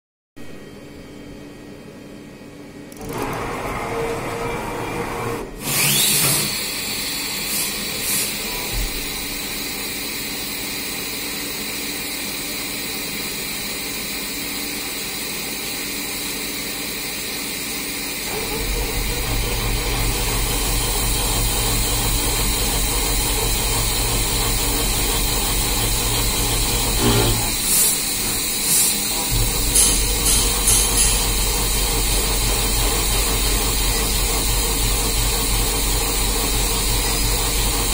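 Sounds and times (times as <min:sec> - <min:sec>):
machine hum: 0:18.0 - 0:37.9
metal cutting noise: 0:18.3 - 0:37.9
coolant hiss: 0:20.5 - 0:37.9.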